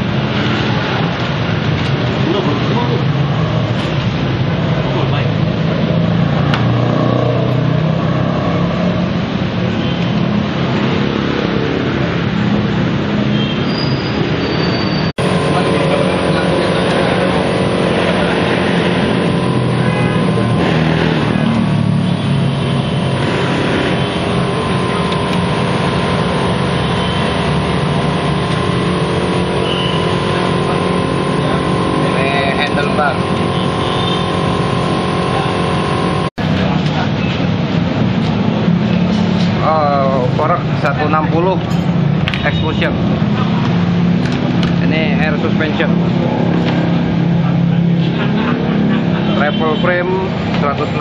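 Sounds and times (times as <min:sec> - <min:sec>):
mechanical drone with hum: 0:15.2 - 0:39.6.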